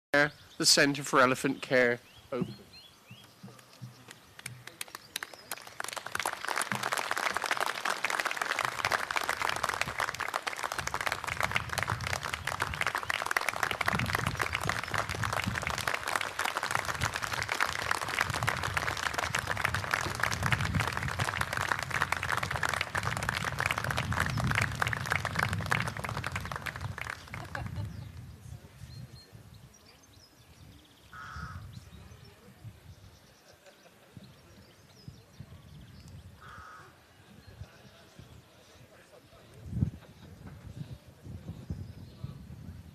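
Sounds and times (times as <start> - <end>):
audience applause: 4.4 - 28.0.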